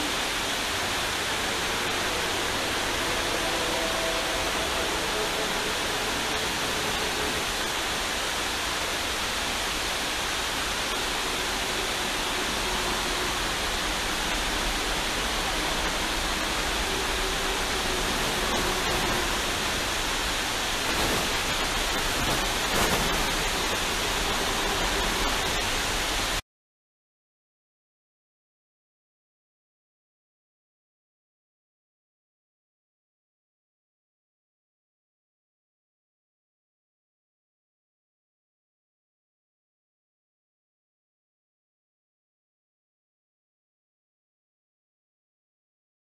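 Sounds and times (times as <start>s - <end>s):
water rushing over a dam: 0.0s - 26.4s.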